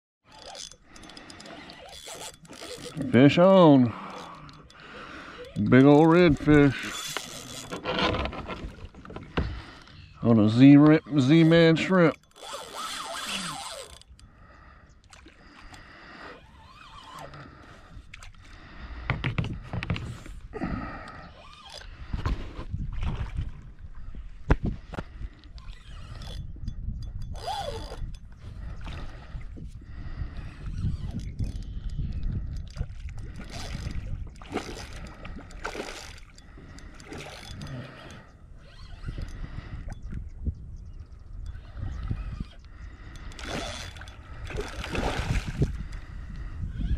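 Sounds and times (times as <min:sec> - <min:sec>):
water splashing and sloshing: 0:00.2 - 0:14.1, 0:15.0 - 0:26.4, 0:32.2 - 0:39.4, 0:41.5 - 0:46.9
fishing reel scraping: 0:00.3 - 0:14.8, 0:15.4 - 0:18.9, 0:20.0 - 0:22.2, 0:25.2 - 0:40.2, 0:41.3 - 0:46.9
wind rumble on microphone: 0:21.8 - 0:46.9.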